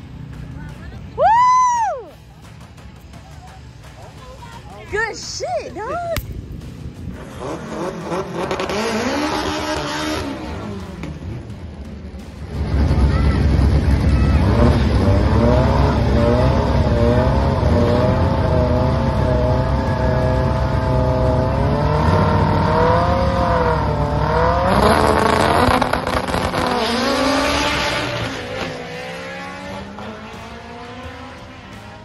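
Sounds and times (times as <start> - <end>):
drag car engine revving: 7.0 - 32.0.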